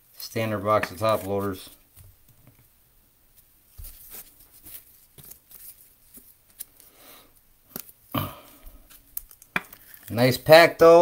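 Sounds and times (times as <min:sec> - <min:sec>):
cards being handled: 0:00.6 - 0:02.1, 0:03.3 - 0:07.0, 0:07.7 - 0:08.1.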